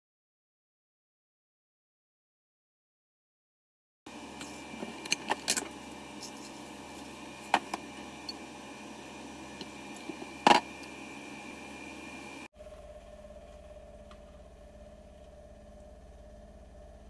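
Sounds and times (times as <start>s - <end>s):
faint high whine: 4.1s - 17.0s
steady background hum: 4.1s - 17.0s.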